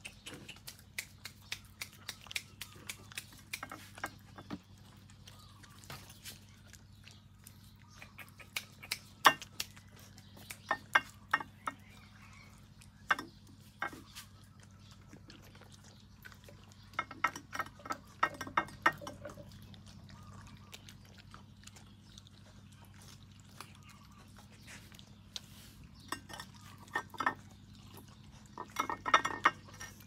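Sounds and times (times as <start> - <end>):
dog crunching food: 0.0 - 30.0.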